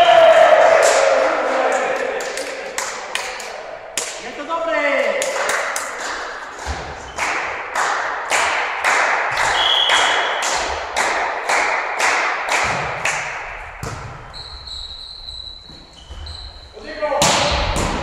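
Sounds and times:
rhythmic clapping in unison: 0.4 - 4.3, 4.9 - 13.9.

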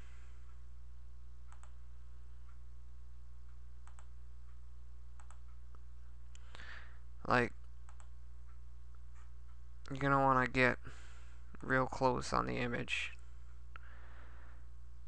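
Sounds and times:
low hum: 0.0 - 15.0
computer mouse clicking: 1.5 - 1.8, 3.8 - 4.1, 5.2 - 5.6, 7.8 - 8.2
short breath: 6.4 - 7.0, 10.9 - 11.4, 13.8 - 14.7.

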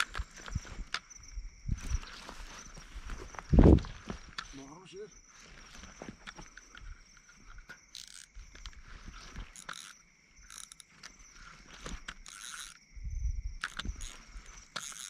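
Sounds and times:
crickets chirping: 0.0 - 15.0
handling clicks and rustling: 1.8 - 4.8, 5.4 - 12.8.

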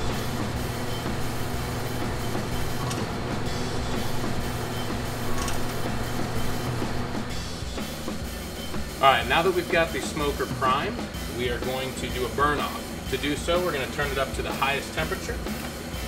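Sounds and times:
auger motor humming: 0.0 - 14.4.

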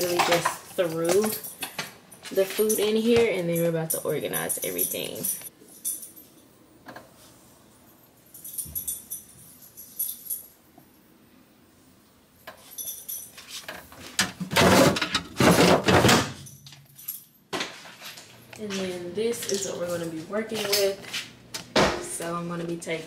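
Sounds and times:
rattling jangling handling noise: 0.0 - 6.6, 7.8 - 10.7, 12.4 - 14.2, 16.3 - 21.0.

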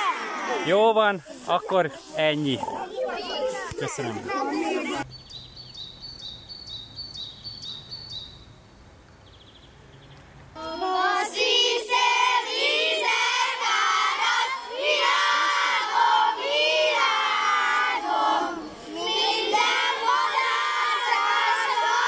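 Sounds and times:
children singing and shouting: 0.0 - 5.1, 10.6 - 22.0.

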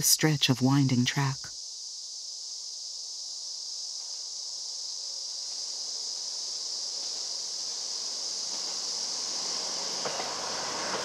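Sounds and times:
high-pitched insect chorus: 0.0 - 11.0
diesel railcar rumble: 8.5 - 11.0.

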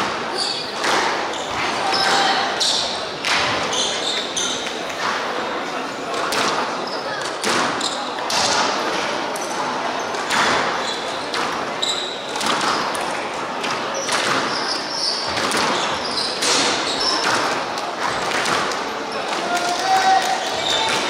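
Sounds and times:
sneaker squeaks on wooden floor: 3.6 - 4.7, 10.7 - 12.9, 14.0 - 17.5
squash ball smacking: 12.3 - 14.6, 15.3 - 17.6.

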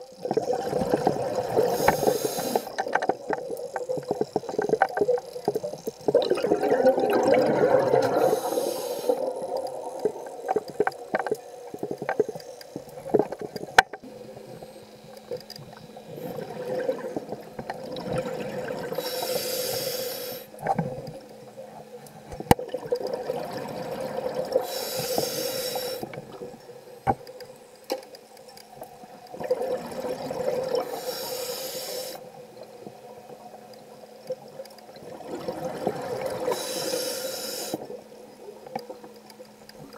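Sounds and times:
regulator hiss on inhale: 1.6 - 3.0, 8.0 - 10.3, 18.9 - 20.6, 24.6 - 26.3, 30.8 - 32.4, 36.4 - 38.0
bubbling exhales: 6.1 - 10.8.

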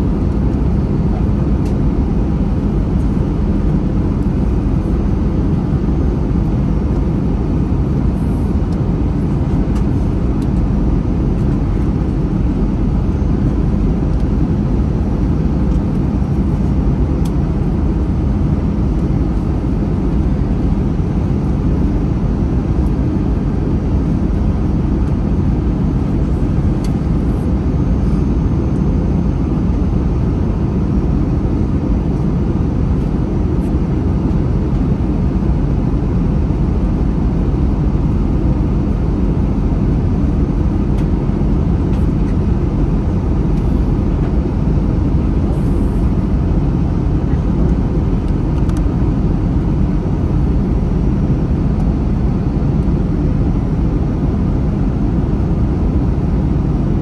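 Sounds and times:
airflow and jet engine noise: 0.0 - 57.0.

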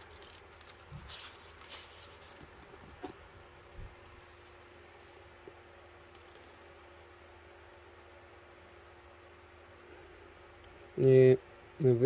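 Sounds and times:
paper pages rustling: 0.0 - 3.2.

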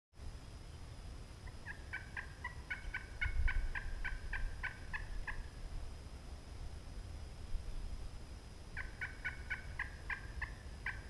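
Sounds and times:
wild turkey yelping: 1.4 - 5.5, 8.8 - 11.0.

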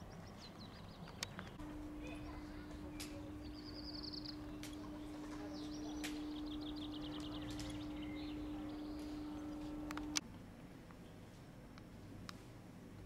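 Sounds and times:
songbirds trilling: 0.0 - 10.2
steady low hum: 0.9 - 13.0
click: 9.0 - 10.2.

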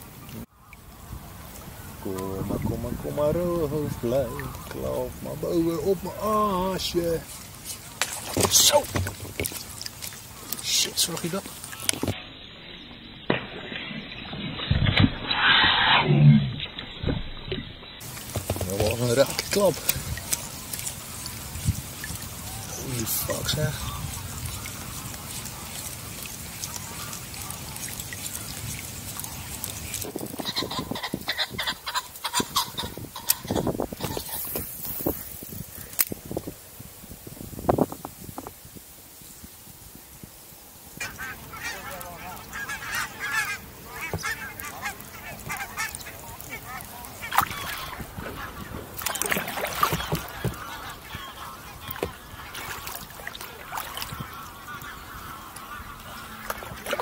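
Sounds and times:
kayak paddle splashing: 0.0 - 15.8, 16.5 - 36.3, 40.8 - 57.0
waterfowl calling: 0.5 - 14.7, 16.6 - 36.0, 40.9 - 57.0
geese honking: 1.6 - 7.1, 17.8 - 34.5, 41.0 - 57.0.

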